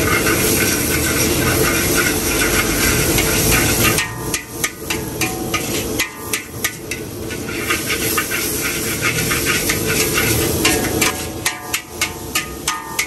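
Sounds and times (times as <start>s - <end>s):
metal spatula scraping wok: 0.0s - 13.0s
wok sizzling: 0.0s - 13.0s.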